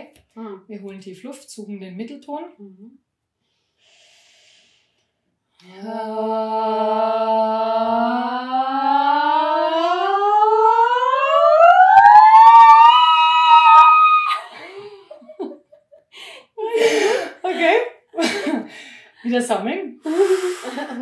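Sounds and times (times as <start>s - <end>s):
women singing a rising glide: 5.6s - 11.8s.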